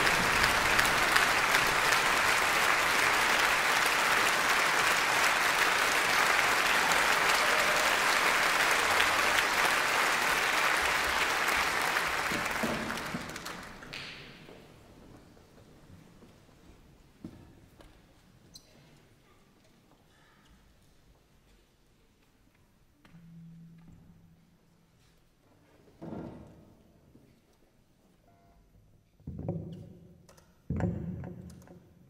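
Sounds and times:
audience applauding: 0.0s - 14.4s.

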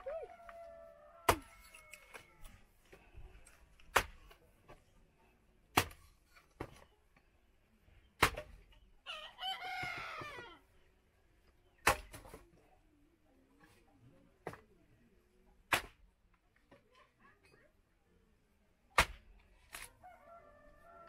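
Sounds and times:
rooster crowing: 0.0s - 2.5s, 9.1s - 10.5s, 20.0s - 21.0s
chopping blows splitting wood: 3.9s - 4.3s, 5.7s - 6.7s, 8.2s - 8.6s, 11.8s - 12.4s, 15.7s - 16.0s, 18.9s - 19.8s.

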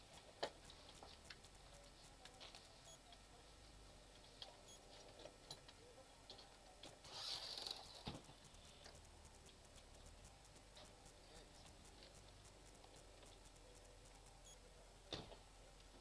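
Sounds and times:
faint ticks: 0.0s - 3.3s, 6.4s - 14.8s
soft rustling hiss: 0.0s - 16.0s.

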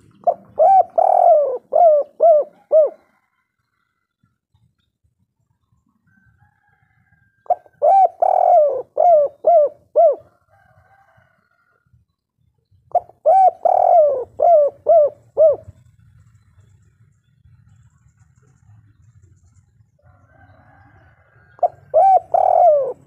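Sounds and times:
dove cooing: 0.0s - 3.4s, 7.4s - 11.4s, 12.9s - 16.7s, 20.3s - 23.0s.

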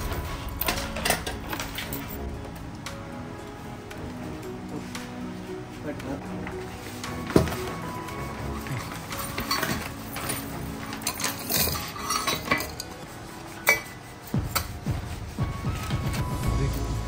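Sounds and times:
scrap jewellery clinking: 9.2s - 12.9s.

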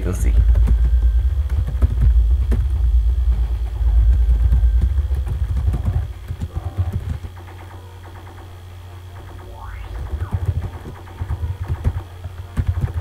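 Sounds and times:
heavy low rumble: 9.3s - 11.6s.

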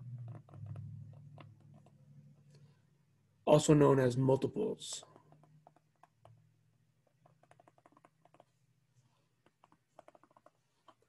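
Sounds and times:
stylus tapping on tablet screen: 0.0s - 2.6s, 5.1s - 11.0s.

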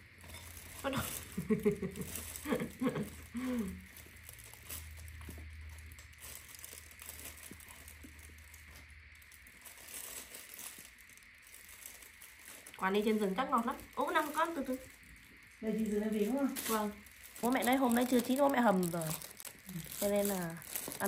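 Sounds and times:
plastic glove and bag crinkling: 0.0s - 21.0s.

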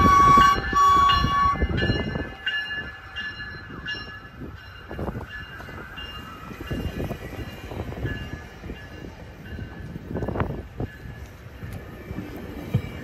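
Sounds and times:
train horn blasts: 0.0s - 2.3s
train coaches rumbling past: 0.0s - 13.0s.

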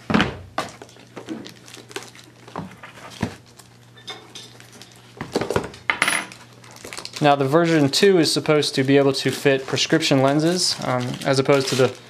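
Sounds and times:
paper rustling: 8.6s - 12.0s.

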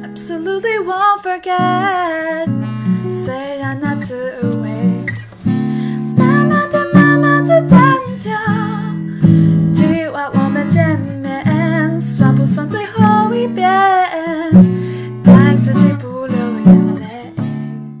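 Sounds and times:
strummed acoustic guitar: 1.5s - 18.0s
person singing: 5.9s - 9.1s, 9.8s - 17.8s.

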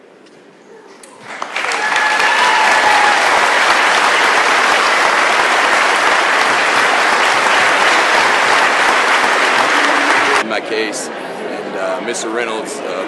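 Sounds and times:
audience applauding: 1.2s - 10.4s.

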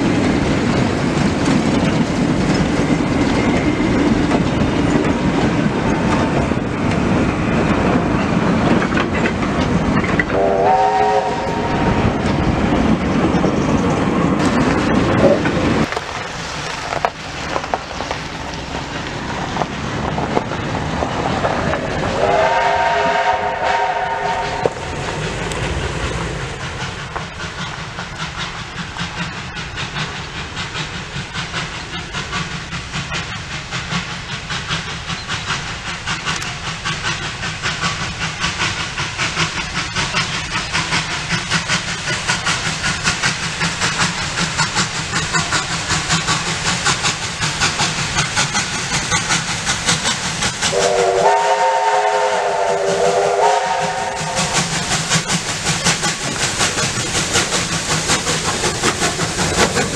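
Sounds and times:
steam locomotive exhaust beats: 0.0s - 59.9s
steam locomotive whistle: 10.2s - 12.0s, 22.2s - 24.8s, 50.7s - 54.8s.

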